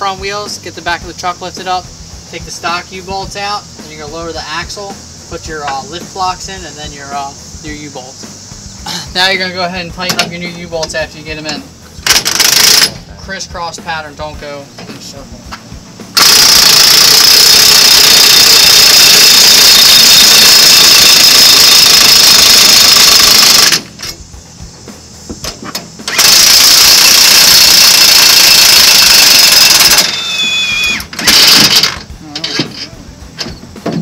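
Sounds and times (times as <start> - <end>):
impact wrench hammering: 12.0 - 13.0, 16.2 - 24.2, 26.0 - 30.2, 31.0 - 32.7.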